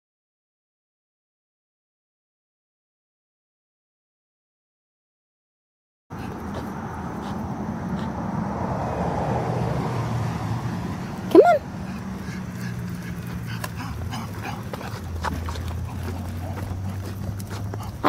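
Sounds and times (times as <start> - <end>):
dog yelp: 11.3 - 11.7.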